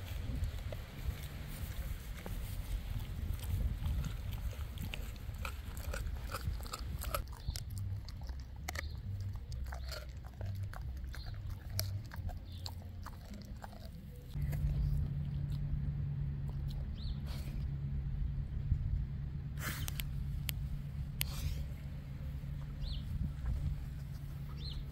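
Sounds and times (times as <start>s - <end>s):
dog chewing and crunching bones: 0.0s - 17.6s
steady low hum: 0.0s - 24.9s.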